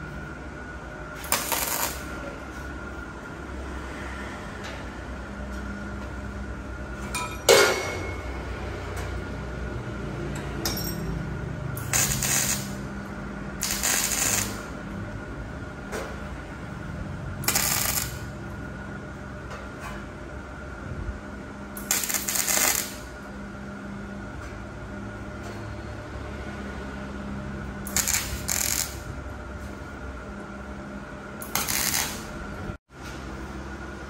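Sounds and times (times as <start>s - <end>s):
steady hum: 0.0s - 34.0s
metallic clank: 7.0s - 8.4s.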